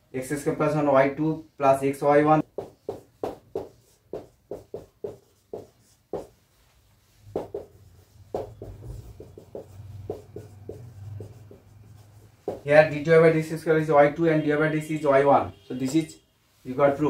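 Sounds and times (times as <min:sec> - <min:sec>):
marker writing on whiteboard: 0:02.4 - 0:13.4.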